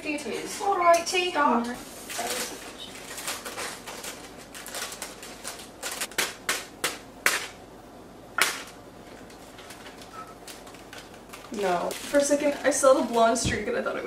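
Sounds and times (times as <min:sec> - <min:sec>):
plastic bag crinkling: 0:01.9 - 0:06.5, 0:08.5 - 0:13.5.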